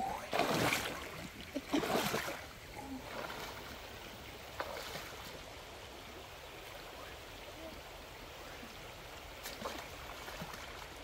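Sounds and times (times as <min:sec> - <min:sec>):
river water rushing: 0:00.0 - 0:11.0
water splash: 0:00.2 - 0:03.8.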